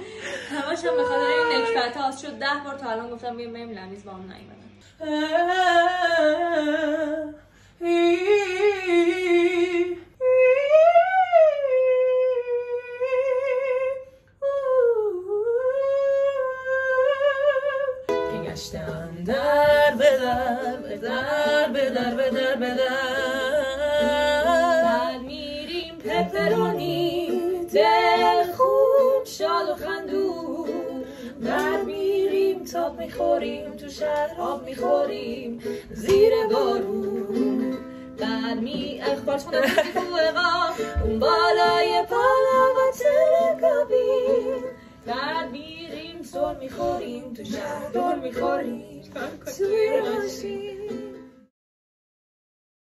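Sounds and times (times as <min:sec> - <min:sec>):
woman doing vocal warm-ups: 0:14.0 - 0:51.1
strummed ukulele: 0:15.8 - 0:51.5
people singing together: 0:18.4 - 0:51.3.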